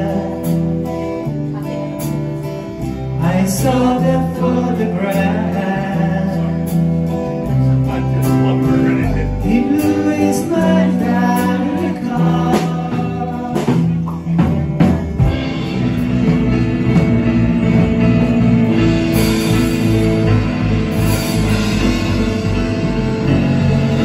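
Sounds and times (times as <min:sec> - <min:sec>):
live rock band playing: 0:00.0 - 0:24.0.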